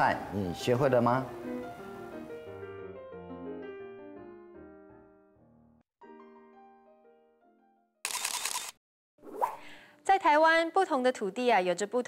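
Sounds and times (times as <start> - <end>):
soft piano music: 0.0 - 8.0.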